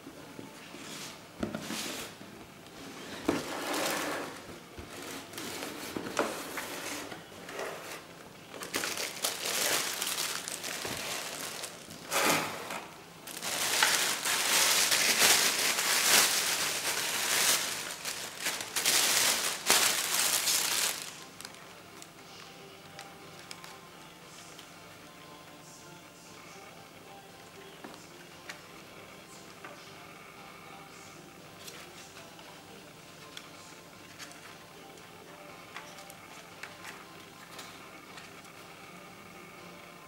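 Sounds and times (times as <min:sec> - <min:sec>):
plastic bag crinkling: 0:08.5 - 0:12.1, 0:13.2 - 0:21.6.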